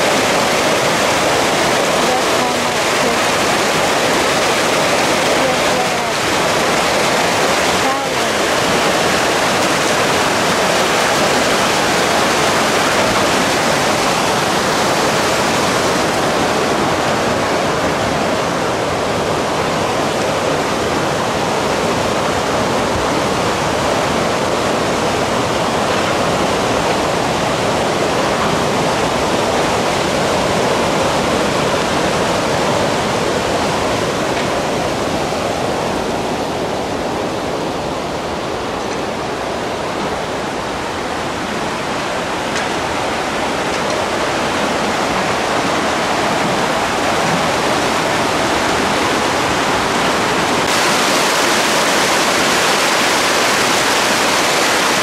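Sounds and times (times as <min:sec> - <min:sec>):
water rushing over weir: 0:00.0 - 0:55.0.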